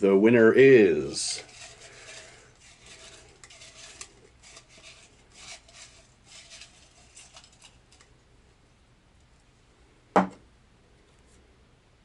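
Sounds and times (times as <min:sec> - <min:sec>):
paper slips rattling in a mug: 0:01.0 - 0:08.1.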